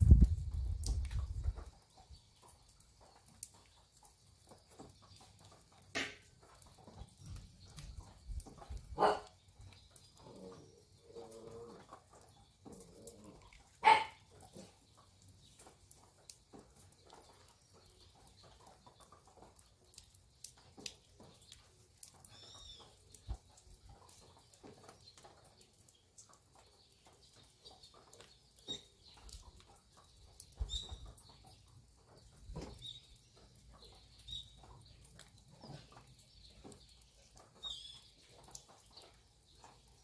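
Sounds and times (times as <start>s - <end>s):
small birds chirping: 0.0s - 40.0s.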